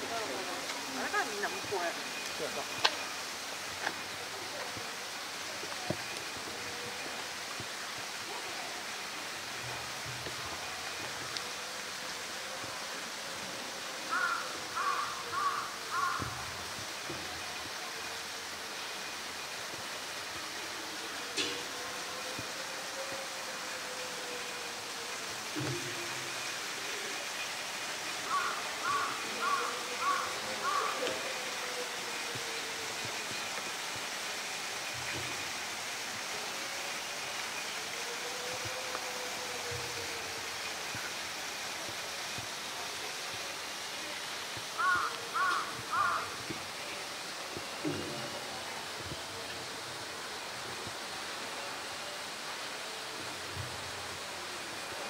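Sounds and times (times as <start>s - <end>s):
running water rushing: 0.0s - 55.0s
steady background hiss: 0.0s - 55.0s
crow cawing: 14.1s - 16.4s, 28.3s - 31.1s, 44.8s - 46.4s.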